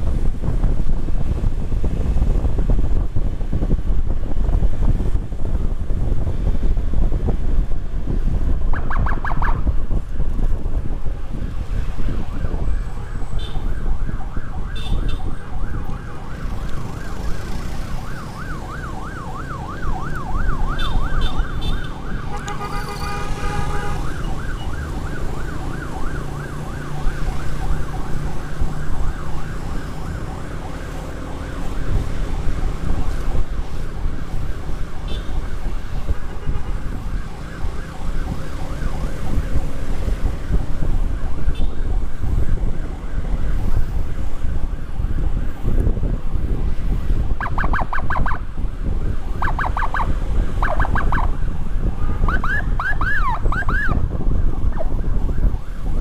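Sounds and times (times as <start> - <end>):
wind rush: 0.0 - 56.0
electronic siren yelp and wail: 8.7 - 9.8, 11.1 - 56.0
horn blast: 22.3 - 24.1.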